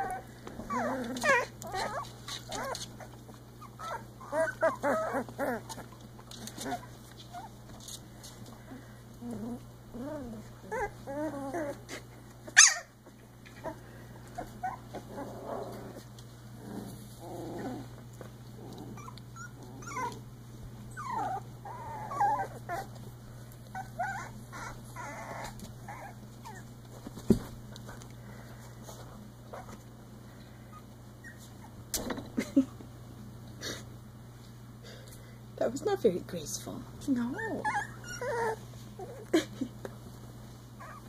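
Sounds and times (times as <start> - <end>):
puppies whimpering and squeaking: 0.0 - 16.2, 18.9 - 27.2, 30.7 - 31.8, 37.2 - 39.4, 40.8 - 41.0
steady low hum: 0.0 - 41.0.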